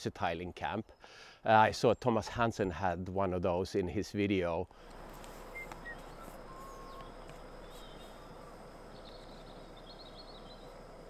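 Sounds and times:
soft outdoor hiss: 0:00.0 - 0:11.0
faint bird chirps: 0:05.4 - 0:11.0.

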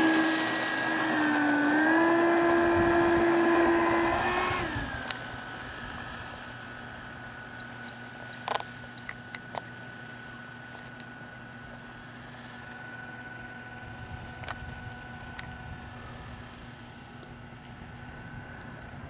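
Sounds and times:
electric ducted fan whine: 0:00.0 - 0:19.0.

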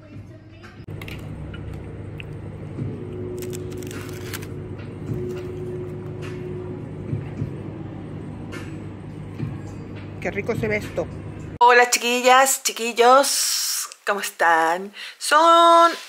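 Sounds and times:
microwave oven running: 0:00.8 - 0:11.6.

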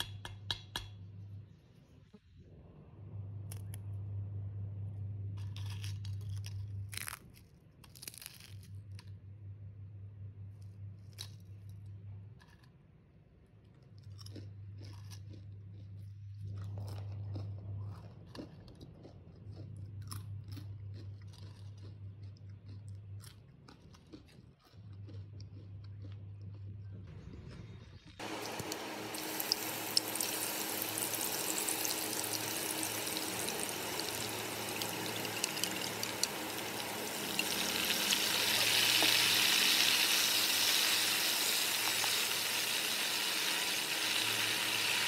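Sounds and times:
low hum: 0:01.0 - 0:05.5, 0:26.6 - 0:45.0
crunching chips being chewed: 0:05.3 - 0:09.2, 0:10.6 - 0:12.8, 0:13.6 - 0:44.9.

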